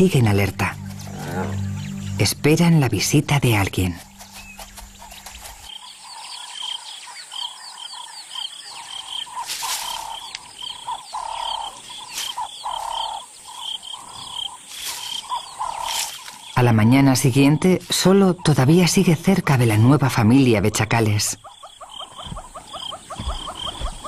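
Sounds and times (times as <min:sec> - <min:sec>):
small animals chirping: 0:00.2 - 0:18.8, 0:20.2 - 0:24.0
lower animal calls: 0:00.7 - 0:02.2, 0:21.4 - 0:24.0.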